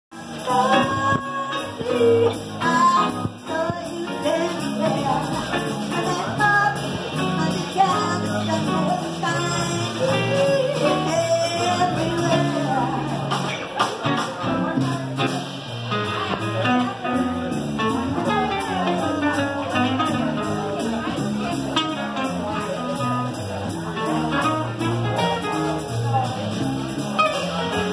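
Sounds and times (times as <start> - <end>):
acoustic guitar: 0.1 - 27.9
upright bass: 0.1 - 27.9
woman singing: 0.4 - 13.2.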